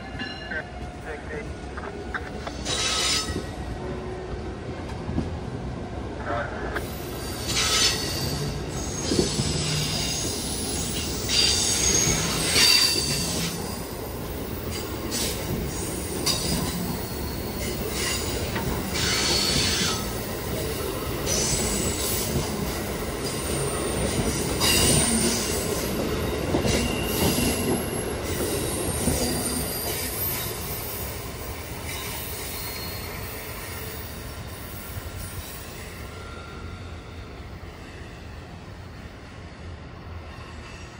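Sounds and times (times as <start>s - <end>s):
train cars rumbling past: 0.0s - 40.9s
high-pitched wheel squeals: 7.2s - 13.3s, 31.9s - 33.5s.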